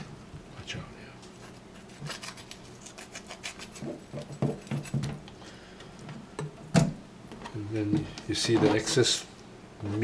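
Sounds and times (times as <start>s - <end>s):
knife scraping fish skin: 1.4s - 5.1s.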